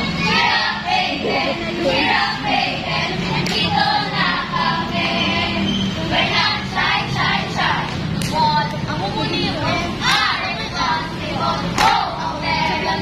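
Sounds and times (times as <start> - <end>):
girls singing together: 0.0 - 8.1, 9.4 - 13.0.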